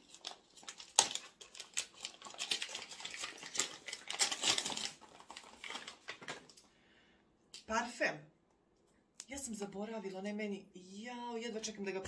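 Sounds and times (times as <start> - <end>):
wrapping paper crinkling and rustling: 0.0 - 6.7.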